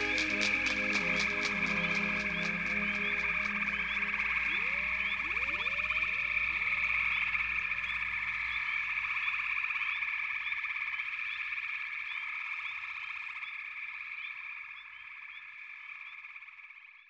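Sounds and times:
frog chorus trilling: 0:00.0 - 0:17.0
rising frog chirps: 0:02.8 - 0:10.1.

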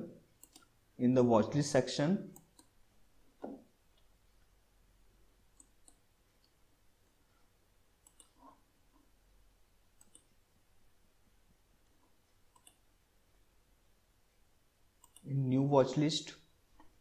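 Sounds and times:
computer mouse clicks: 0:00.4 - 0:00.7, 0:02.3 - 0:02.8, 0:05.6 - 0:06.6, 0:08.0 - 0:08.6, 0:10.0 - 0:10.4, 0:12.5 - 0:12.8, 0:15.0 - 0:15.3.

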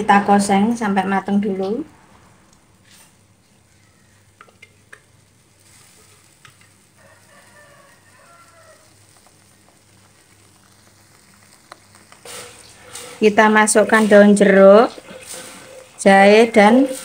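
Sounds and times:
paste sizzling in oil: 0:02.7 - 0:17.0
rooster crowing: 0:07.0 - 0:09.0.

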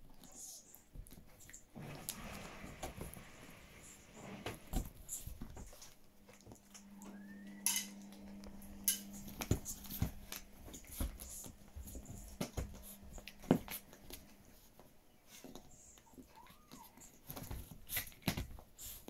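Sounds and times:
dog playing with toy on fabric: 0:00.4 - 0:06.6, 0:09.2 - 0:15.9
low hum: 0:06.2 - 0:10.8.

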